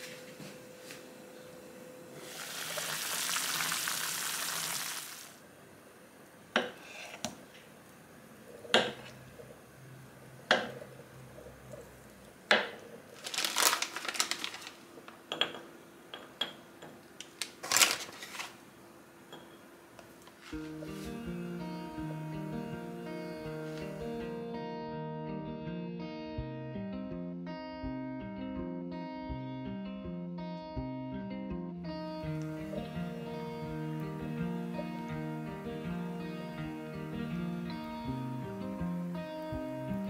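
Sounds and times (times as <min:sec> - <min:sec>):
pot hissing: 0:02.2 - 0:05.4.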